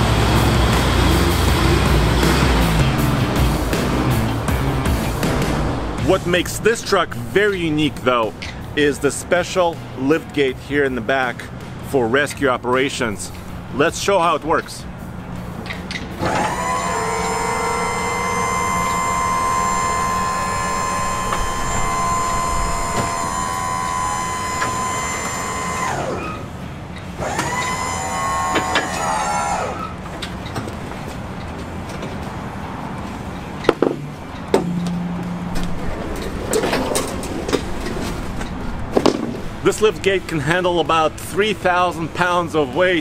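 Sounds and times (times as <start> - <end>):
hydraulic pump motor whining: 15.9 - 30.6.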